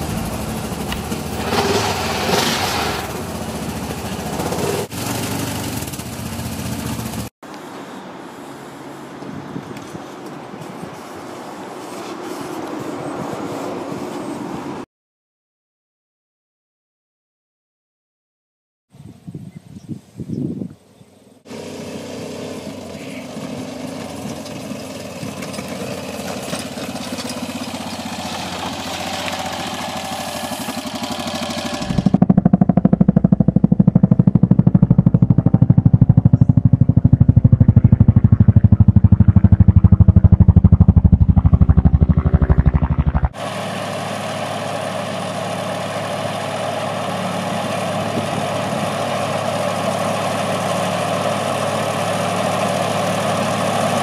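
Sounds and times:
tractor engine mowing grass: 0.0s - 7.3s, 21.5s - 54.0s
utility vehicle engine running: 0.0s - 7.3s, 21.5s - 54.0s
loud fast low pulsing: 31.1s - 43.5s.

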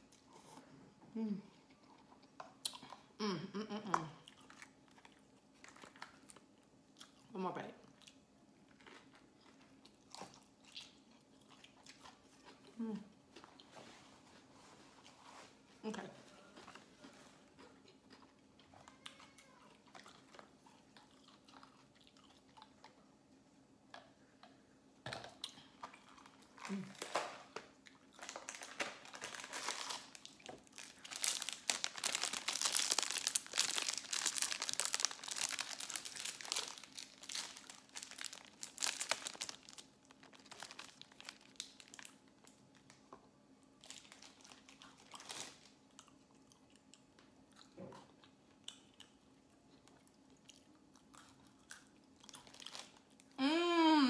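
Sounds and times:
crunching biscuit sticks: 25.2s - 43.1s, 43.8s - 49.2s, 49.8s - 53.4s
foil bag crinkling: 26.3s - 27.6s, 28.2s - 43.0s, 43.8s - 45.8s, 52.4s - 53.0s.

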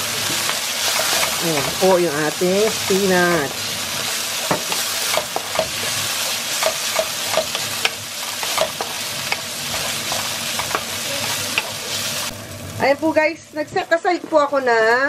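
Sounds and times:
vegetables sizzling in frying pan: 0.0s - 15.0s
spatula scraping and tapping pan: 4.4s - 5.9s, 6.5s - 11.8s.

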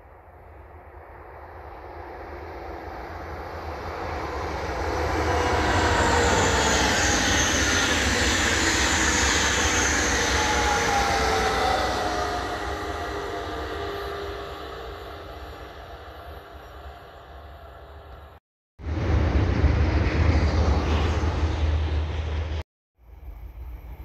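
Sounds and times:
high-speed train passing: 0.0s - 24.0s
falling whining tones: 1.4s - 18.4s.

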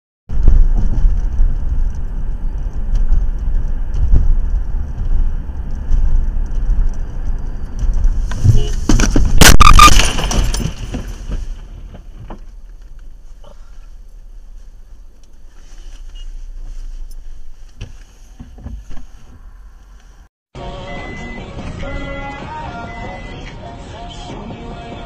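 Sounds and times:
car road rumble: 0.3s - 25.0s
car crash: 8.0s - 12.5s.

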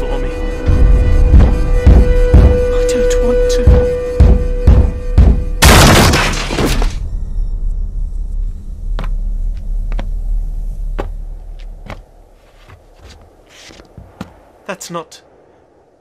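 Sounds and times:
low rumble: 0.0s - 13.5s
loud crash: 5.6s - 7.2s.

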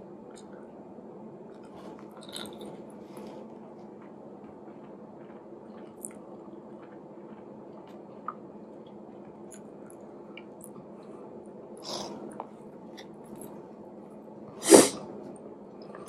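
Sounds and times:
low steady hum: 0.0s - 16.0s
loud burst of breath: 14.6s - 15.0s.

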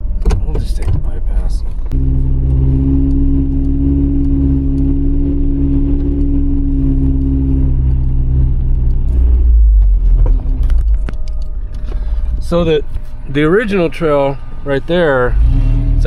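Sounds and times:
engine drone inside cab: 0.0s - 16.0s.

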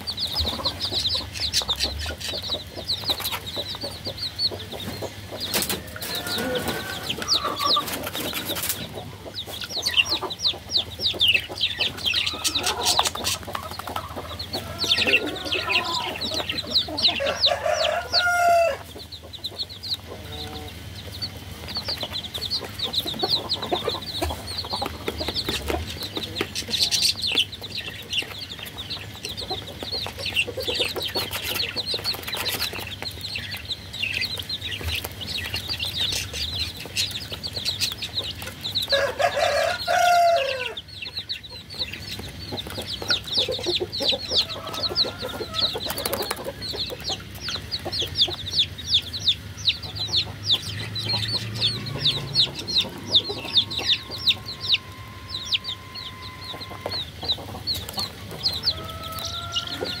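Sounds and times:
baby chicks peeping: 0.0s - 60.0s
chicken call: 14.6s - 18.8s.

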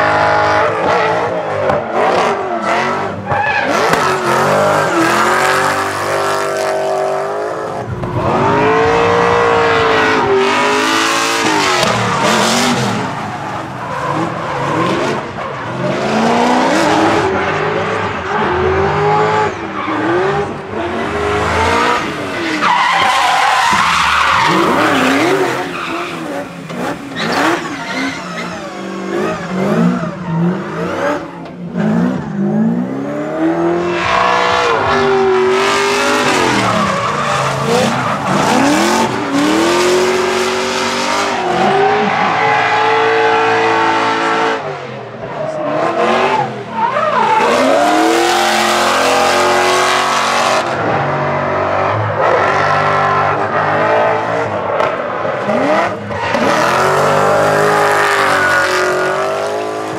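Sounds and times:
car engines revving: 0.0s - 59.9s
tyres screeching: 21.2s - 31.6s, 33.9s - 40.3s, 56.0s - 59.8s.

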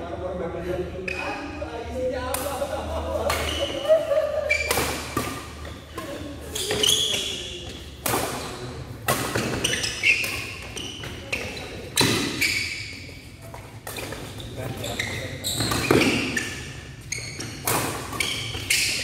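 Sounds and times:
shoes squeaking on court: 1.1s - 1.6s, 3.2s - 19.0s
rackets hitting shuttlecock: 4.5s - 12.7s, 17.4s - 19.0s.

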